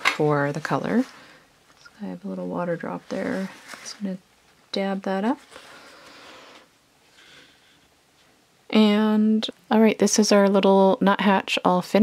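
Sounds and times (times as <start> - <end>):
paper towel rustling: 0.0 - 4.3, 5.2 - 6.6.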